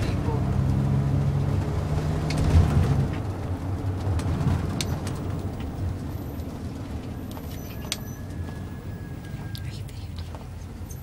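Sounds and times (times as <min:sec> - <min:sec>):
vehicle engine and road rumble: 0:00.0 - 0:11.0
faint high whistling tones: 0:07.4 - 0:09.9.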